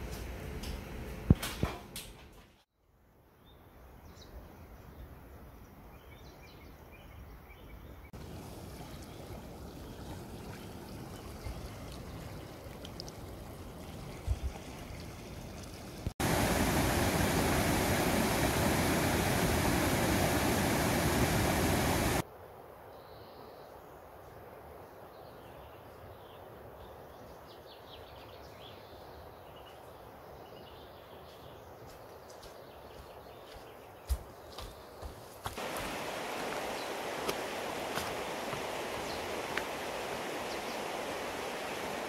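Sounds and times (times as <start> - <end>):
quiet running water: 8.1 - 22.2, 31.8 - 42.0
stream rushing over boulders: 8.2 - 22.2, 35.5 - 42.0.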